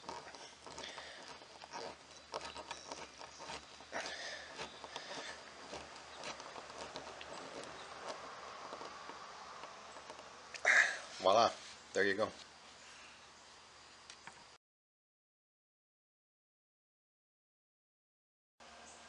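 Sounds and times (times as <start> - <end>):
screwdriver scraping and clicking: 0.0 - 10.6.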